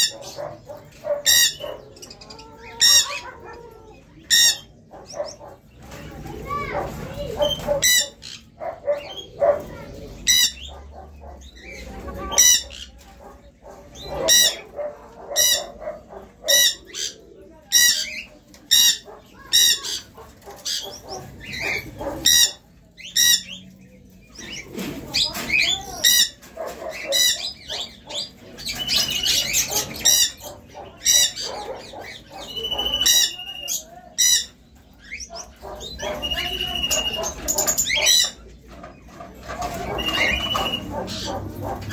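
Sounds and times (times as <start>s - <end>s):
chickens clucking: 0.0s - 41.9s
pigeons cooing: 0.0s - 41.9s
high-pitched bird call: 35.9s - 37.4s, 39.9s - 40.9s.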